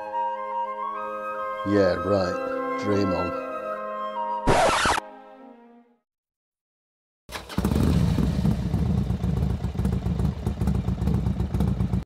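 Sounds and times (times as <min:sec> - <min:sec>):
motorcycle engine running: 0:07.4 - 0:12.0.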